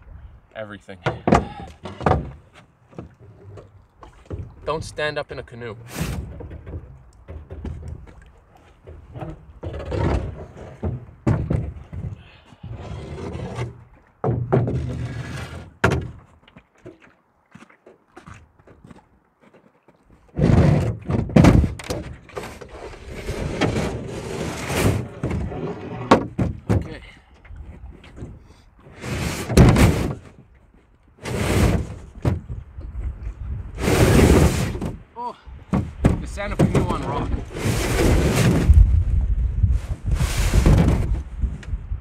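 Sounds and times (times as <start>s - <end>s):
knocks and scrapes in canoe: 0.9s - 41.9s
wind buffeting microphone: 32.0s - 34.8s, 35.6s - 42.0s.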